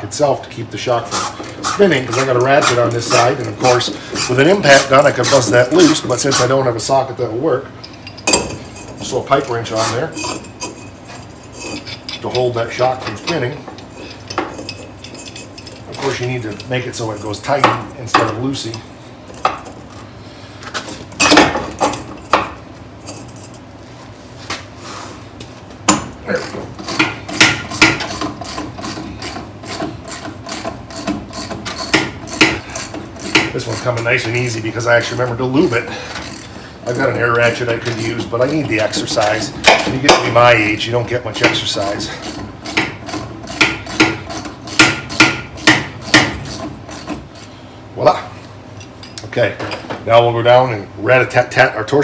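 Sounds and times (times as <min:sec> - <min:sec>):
hand ratchet clicking: 0:26.8 - 0:34.3
wrenches knocking on metal: 0:26.8 - 0:47.3.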